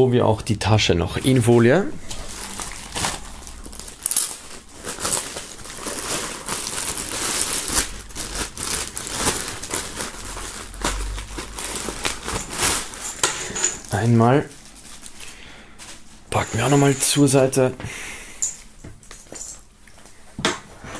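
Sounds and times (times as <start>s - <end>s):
plastic film crinkling: 1.2s - 17.5s.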